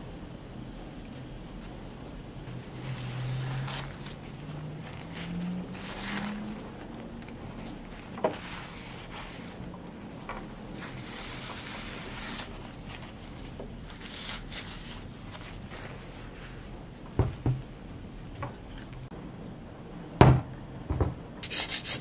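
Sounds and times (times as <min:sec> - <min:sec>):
cloth rubbing on metal: 0:02.5 - 0:17.0.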